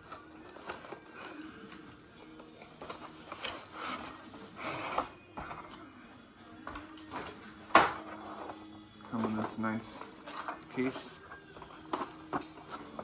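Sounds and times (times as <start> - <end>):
box and case scraping and rustling: 2.8 - 5.7.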